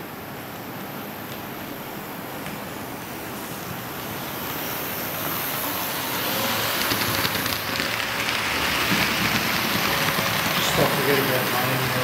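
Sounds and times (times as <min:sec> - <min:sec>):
model train motor hum: 0:03.2 - 0:12.0
wheels crackling on rails: 0:03.6 - 0:12.0.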